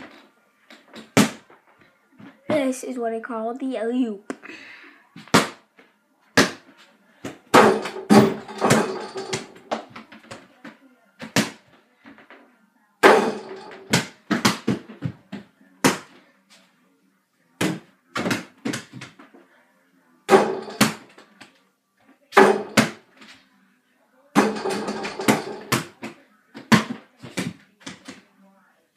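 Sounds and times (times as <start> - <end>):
ball bouncing off floor and walls: 0.0 - 2.7, 5.2 - 12.4, 13.0 - 16.2, 17.6 - 19.4, 20.3 - 21.6, 22.3 - 23.4, 24.3 - 28.3
ball knocking on backboard and rim: 7.5 - 10.0, 22.4 - 23.0, 24.4 - 26.0.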